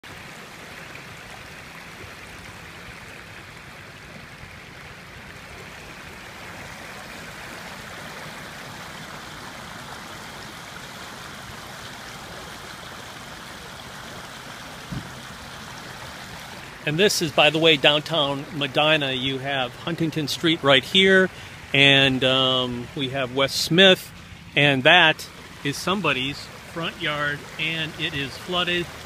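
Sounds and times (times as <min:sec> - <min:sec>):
floodwater rushing: 0:00.0 - 0:29.0
thump: 0:14.9 - 0:15.2.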